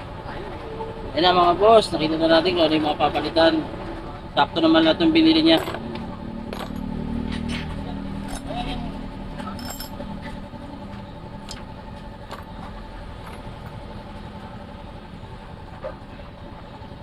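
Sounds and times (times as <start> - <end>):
engine humming: 0.0 - 17.0
metal parts clinking: 5.5 - 5.8, 6.5 - 6.9, 8.2 - 8.5, 9.4 - 10.0.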